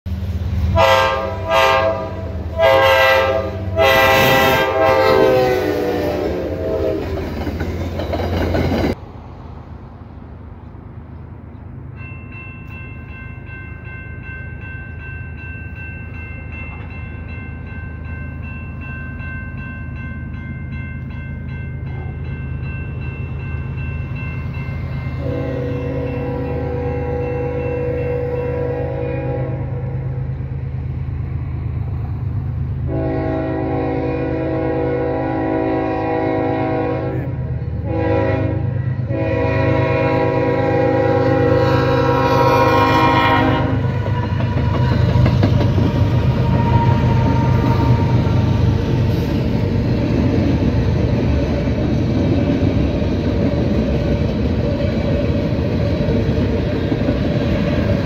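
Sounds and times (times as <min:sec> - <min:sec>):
train horn blasts: 0:00.6 - 0:07.3, 0:25.1 - 0:30.4, 0:32.8 - 0:45.1, 0:45.8 - 0:49.4
railroad crossing bell ringing: 0:11.5 - 0:58.0.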